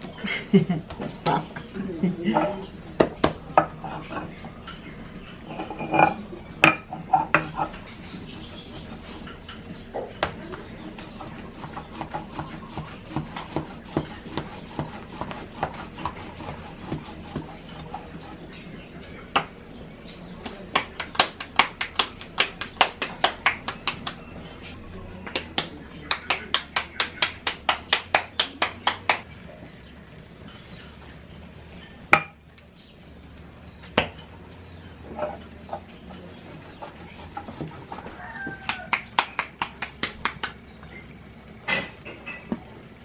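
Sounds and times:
hands kneading dough on stone: 0:06.7 - 0:18.6, 0:35.3 - 0:40.6
hand slaps patting dough: 0:38.6 - 0:40.6.

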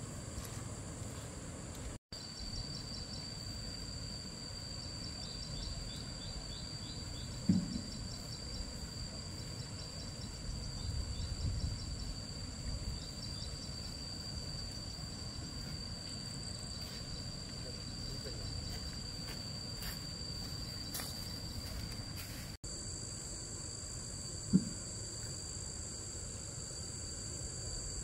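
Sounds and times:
insects trilling: 0:00.0 - 0:28.0
thump: 0:07.4 - 0:08.3, 0:24.5 - 0:24.9.

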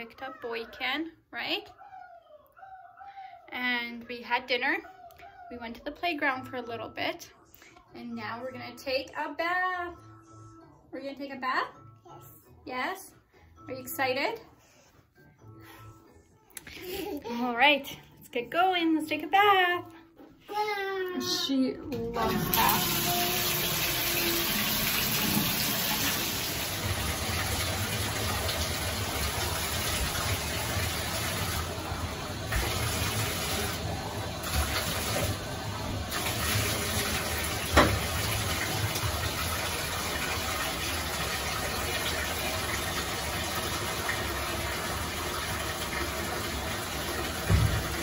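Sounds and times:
tap water gushing into tub: 0:22.0 - 0:48.0.

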